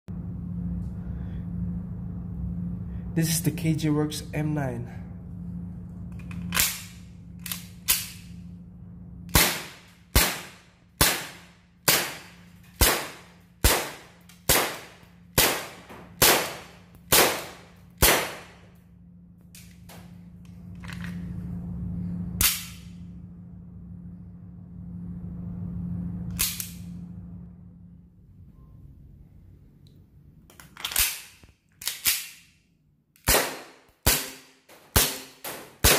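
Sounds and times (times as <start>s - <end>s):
airsoft pistol shots: 9.3s - 18.6s, 33.2s - 35.9s.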